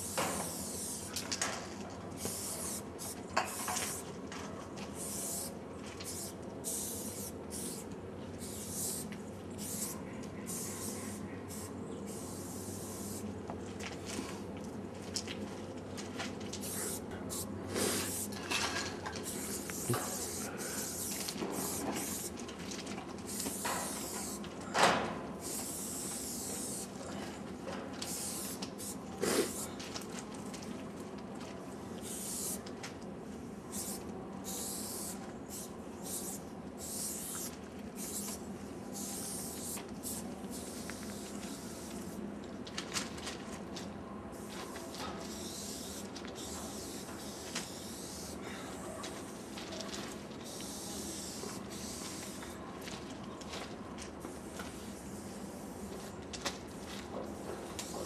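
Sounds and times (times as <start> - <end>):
spray paint can hissing: 0.0 - 1.2, 2.2 - 4.1, 5.0 - 13.3, 16.6 - 18.4, 19.2 - 22.4, 23.2 - 24.4, 25.4 - 27.0, 28.0 - 29.7, 32.0 - 32.6, 33.7 - 42.2, 44.4 - 49.6, 50.4 - 52.6, 54.2 - 56.1, 56.7 - 58.0.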